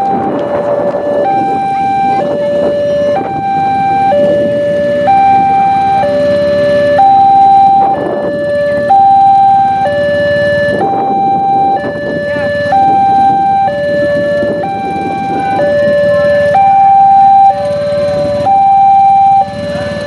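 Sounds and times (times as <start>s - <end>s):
level crossing alarm: 0.0s - 20.0s
road traffic noise: 0.0s - 20.0s.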